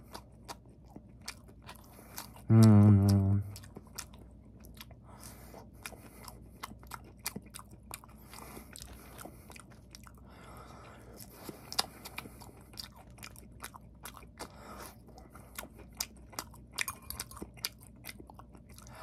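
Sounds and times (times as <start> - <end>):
chewing and mouth smacks: 0.0 - 19.0
person humming mmm: 2.4 - 3.6.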